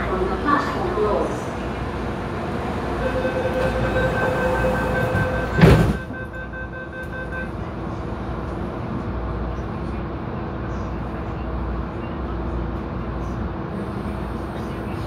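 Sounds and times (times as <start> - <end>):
train hum and rumble: 0.0 - 15.0
train door warning beeps: 3.0 - 7.6
train doors thumping shut: 3.1 - 6.4.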